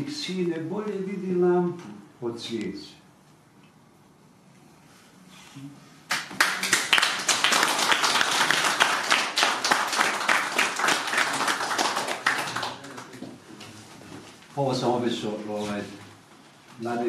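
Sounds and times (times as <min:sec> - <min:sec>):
audience applauding: 0:06.1 - 0:13.3.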